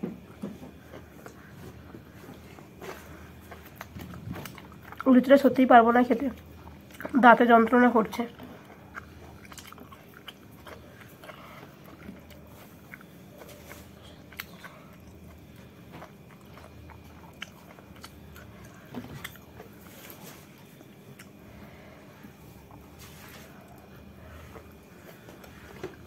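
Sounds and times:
chewing and biting: 0:00.2 - 0:05.5, 0:06.2 - 0:26.0.

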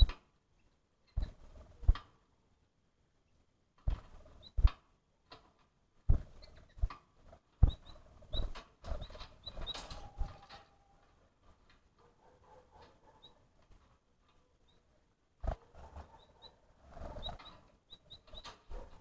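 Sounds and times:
small animal knocking and thumping: 0:03.8 - 0:07.0, 0:07.6 - 0:10.6.

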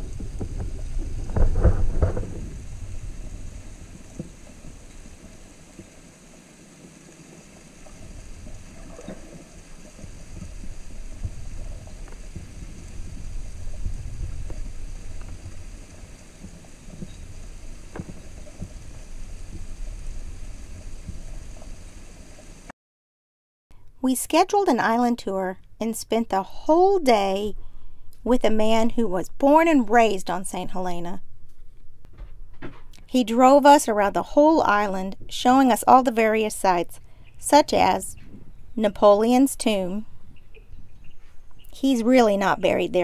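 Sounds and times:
muffled underwater water rumble: 0:00.0 - 0:22.7.

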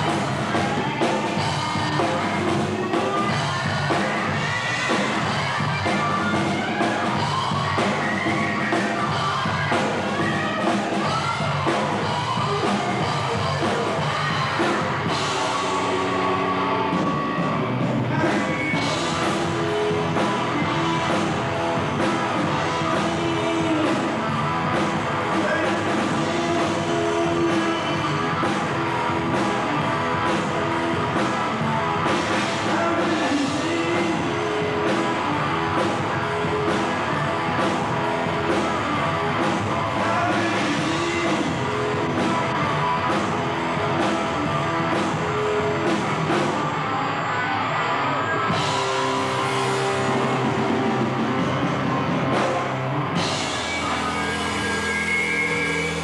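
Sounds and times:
live rock band playing: 0:00.0 - 0:56.0
person singing: 0:00.0 - 0:56.0.

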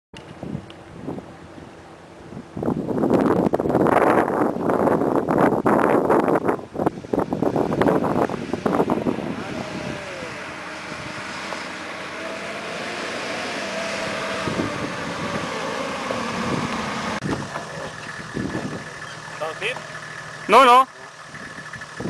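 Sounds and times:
wind buffeting microphone: 0:00.2 - 0:19.2
suv engine running: 0:00.4 - 0:22.0.

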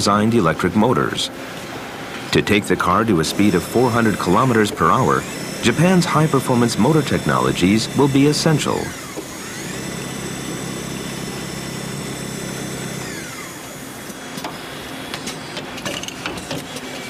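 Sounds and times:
winding machine motor whine: 0:02.9 - 0:15.6.

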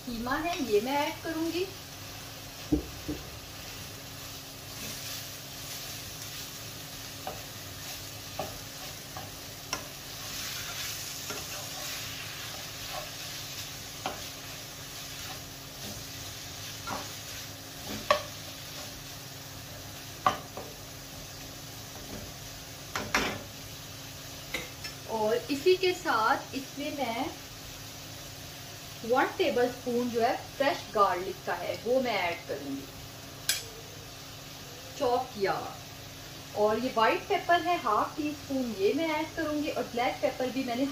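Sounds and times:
meat sizzling in a frying pan: 0:00.0 - 0:40.9
spatula scraping and tapping pan: 0:07.2 - 0:13.4, 0:14.0 - 0:14.4, 0:16.8 - 0:19.0.

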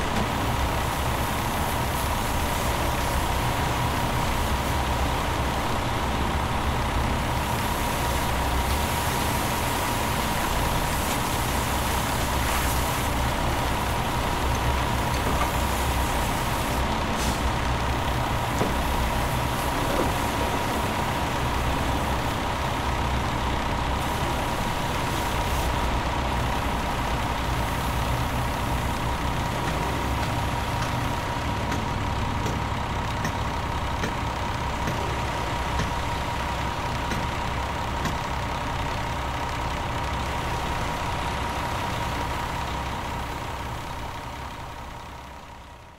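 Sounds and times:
truck engine rumble: 0:00.0 - 0:45.9
hose spraying water: 0:00.3 - 0:05.5, 0:07.3 - 0:17.5, 0:18.2 - 0:22.6, 0:24.0 - 0:31.0.

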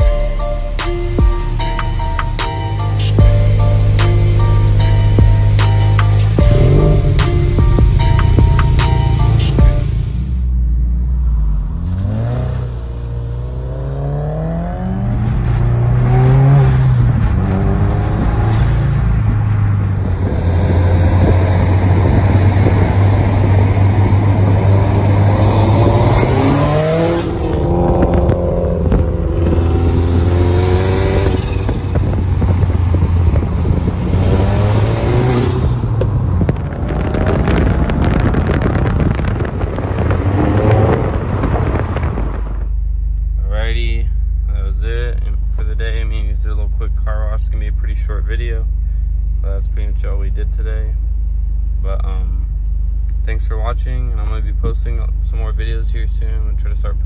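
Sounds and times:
car engines accelerating hard: 0:01.1 - 0:42.7.

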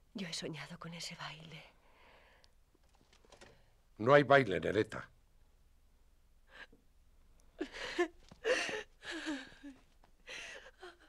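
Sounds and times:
person sobbing quietly: 0:07.6 - 0:11.0.

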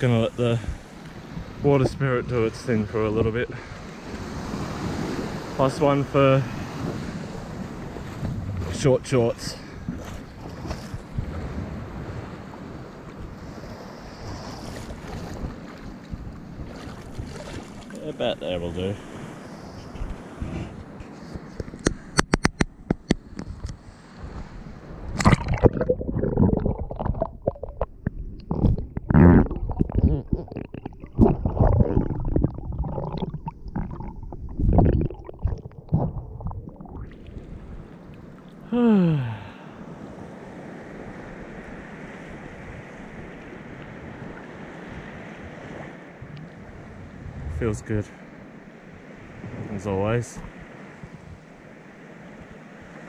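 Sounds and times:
small waves washing: 0:00.0 - 0:22.2, 0:23.2 - 0:53.0
wind buffeting microphone: 0:06.5 - 0:17.8, 0:19.1 - 0:38.3, 0:41.0 - 0:51.6
sharp clicks and taps: 0:21.6 - 0:23.5
muffled underwater gurgling: 0:25.2 - 0:37.7.

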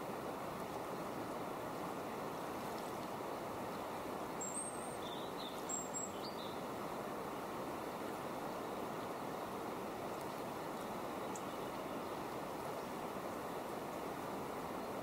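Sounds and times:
flowing river water: 0:00.0 - 0:15.0
bird chirps: 0:04.4 - 0:06.6.

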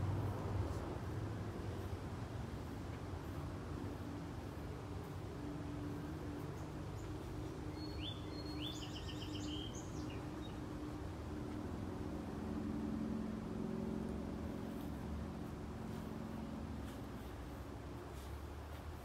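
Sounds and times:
low background hum: 0:00.0 - 0:19.0
songbird chirping and trilling: 0:06.6 - 0:10.8.

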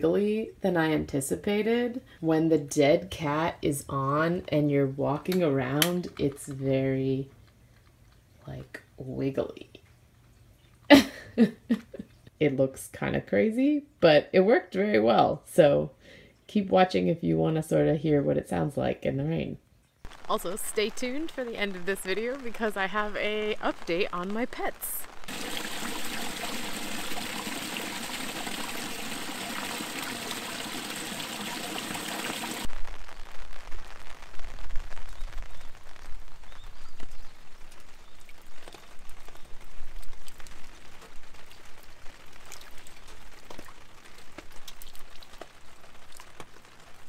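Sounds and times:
drips and splashes: 0:19.8 - 0:32.7, 0:36.6 - 0:47.0
rain pattering on umbrella: 0:20.1 - 0:47.0
water pouring from downspout: 0:20.2 - 0:32.7, 0:36.8 - 0:47.0.

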